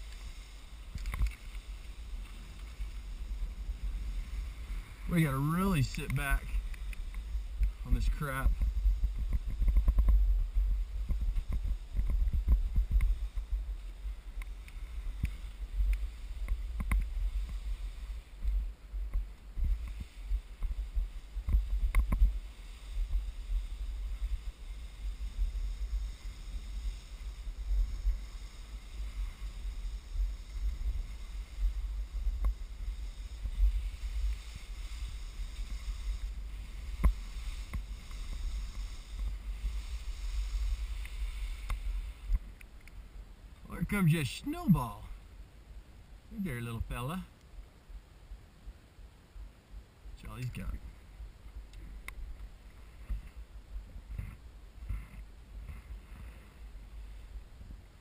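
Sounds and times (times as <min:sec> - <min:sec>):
skis sliding through slushy snow: 0:00.0 - 0:45.3, 0:50.7 - 0:58.0
wind rumble on microphone: 0:00.0 - 0:58.0.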